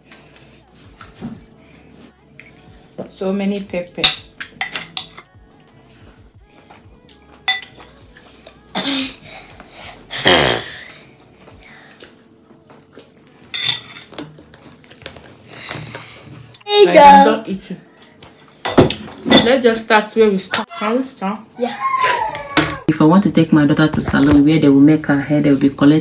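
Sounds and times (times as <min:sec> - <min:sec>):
spoon clinking on ceramic bowl: 0:07.4 - 0:07.9.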